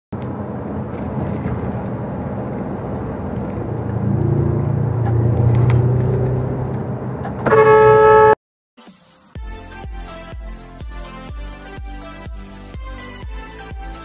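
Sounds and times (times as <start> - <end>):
road noise: 0.1 - 8.4
truck engine drone: 0.1 - 8.4
loud horn blast: 7.4 - 8.4.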